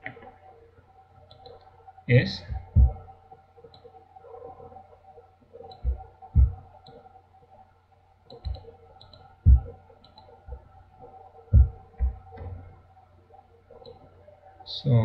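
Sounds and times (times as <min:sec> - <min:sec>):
low electrical hum: 0:00.0 - 0:15.0
dull low thumps: 0:02.5 - 0:03.1, 0:05.8 - 0:06.6, 0:09.4 - 0:09.8, 0:11.5 - 0:12.3.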